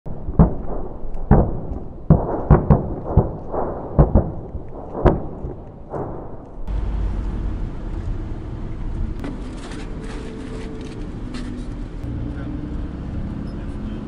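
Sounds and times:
distant artillery explosions: 0.1 - 10.1.

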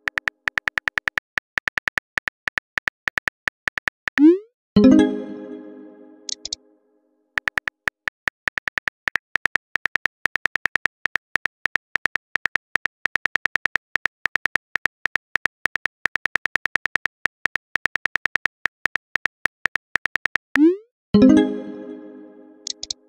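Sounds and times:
phone keyboard tapping clicks: 0.0 - 4.3, 6.3 - 6.6, 7.4 - 20.4, 22.7 - 23.0.

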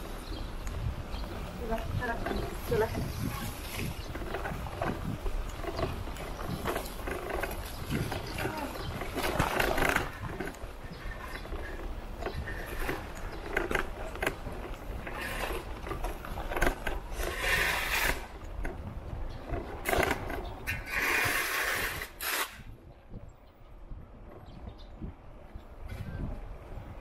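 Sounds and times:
low street rumble: 0.0 - 27.0
clicks and clatters: 4.1 - 17.4.

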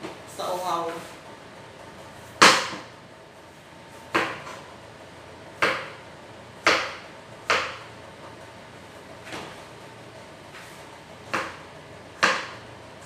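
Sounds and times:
knife chopping on cutting board: 2.4 - 2.9, 4.1 - 4.6, 5.6 - 6.0, 6.6 - 7.9, 11.3 - 11.6, 12.2 - 12.6.

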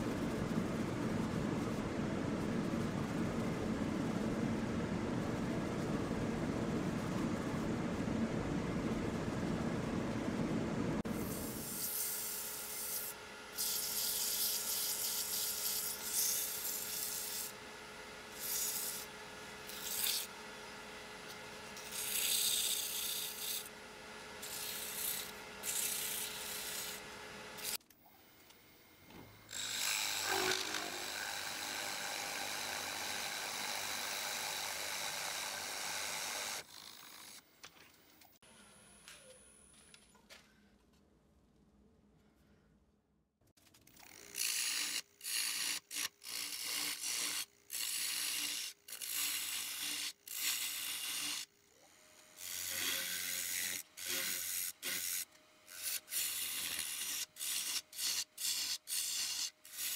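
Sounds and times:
gouge cutting spinning wood: 21.4 - 27.8, 29.5 - 37.4, 52.4 - 59.9
wood lathe motor hum: 29.5 - 37.4.

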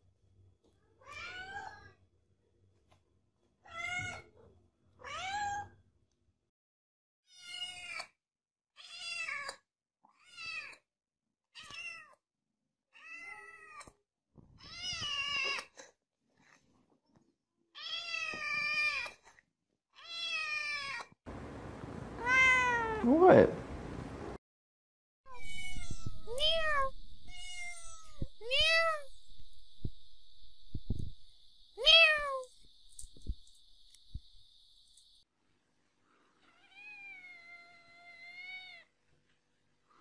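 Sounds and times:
kittens meowing: 22.2 - 23.1, 25.3 - 29.9, 31.8 - 33.3.

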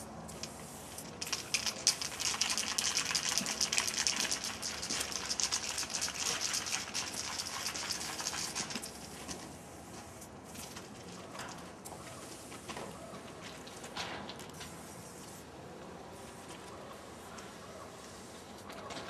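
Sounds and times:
spray paint can hissing: 0.2 - 9.2.

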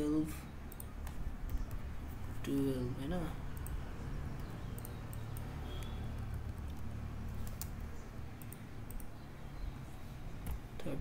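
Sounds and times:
low background hum: 0.0 - 11.0
mouse and keyboard clicks: 4.4 - 9.2.

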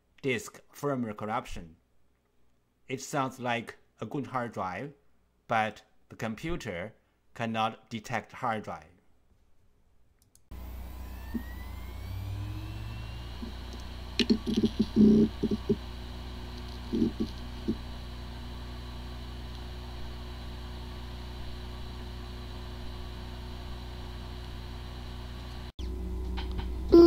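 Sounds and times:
hard drive humming: 10.5 - 27.0
hard drive spinning up whine: 10.5 - 27.0.

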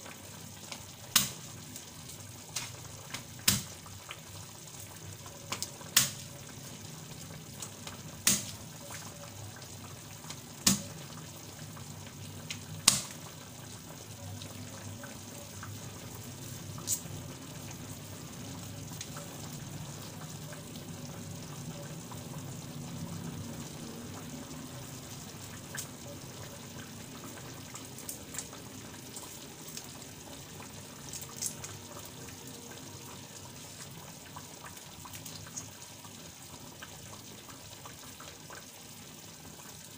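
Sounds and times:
pan bubbling hiss: 0.0 - 39.9
sharp oil pops: 3.4 - 3.7.

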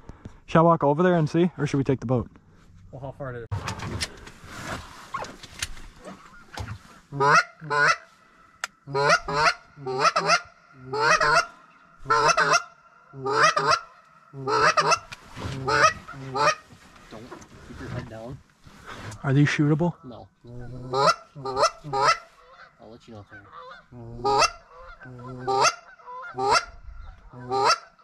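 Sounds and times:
large birds honking: 6.0 - 17.0, 19.9 - 28.0.

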